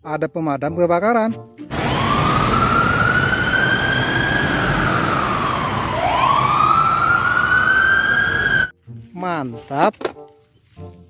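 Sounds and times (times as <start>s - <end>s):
fire engine siren wailing: 1.7s - 8.7s.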